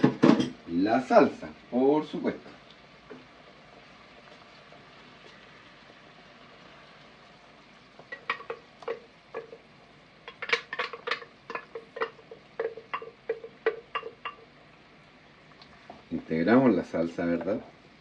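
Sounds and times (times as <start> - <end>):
blender jar knocking on pan: 0.0 - 0.6, 10.3 - 14.5.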